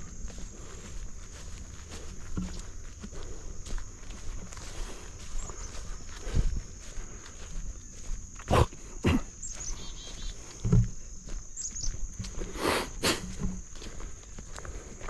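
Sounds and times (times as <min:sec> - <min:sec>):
footsteps through marsh vegetation: 0:00.0 - 0:15.0.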